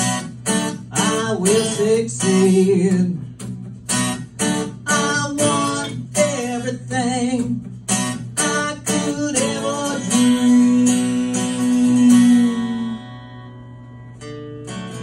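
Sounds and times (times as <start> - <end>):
acoustic guitar strumming: 0.0 - 15.0
person singing wordlessly: 0.9 - 3.3, 4.8 - 7.6, 8.4 - 13.1.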